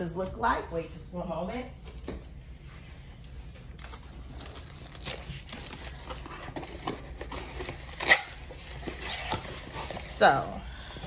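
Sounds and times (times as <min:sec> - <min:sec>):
paper and cardboard rustling: 0:03.3 - 0:10.5.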